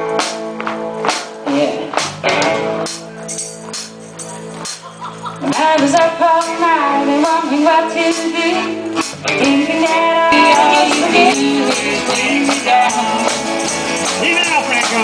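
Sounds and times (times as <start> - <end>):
drums: 0.0 - 15.0
guitars: 0.0 - 15.0
woman singing lead: 1.4 - 2.6, 5.4 - 13.6.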